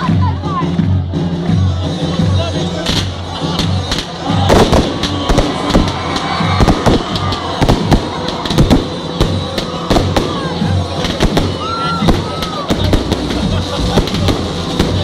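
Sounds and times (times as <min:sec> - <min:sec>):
fireworks bangs and crackles: 0:00.0 - 0:15.0
large crowd noise: 0:00.0 - 0:15.0
loud music with steady beat: 0:00.0 - 0:15.0.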